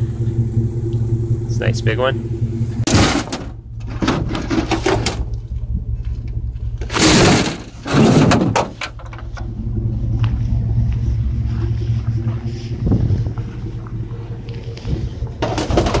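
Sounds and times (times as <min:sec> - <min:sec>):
vehicle engine idling: 0:00.0 - 0:16.0
computer case scraping in truck bed: 0:06.9 - 0:09.0.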